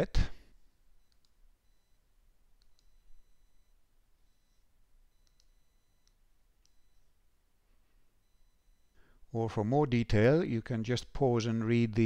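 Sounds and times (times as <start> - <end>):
computer mouse clicks: 1.1 - 1.4, 5.2 - 6.8.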